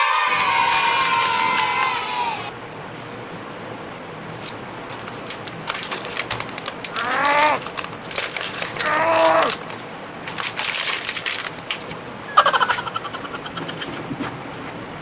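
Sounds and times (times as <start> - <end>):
plastic packaging crackling: 4.9 - 12.0.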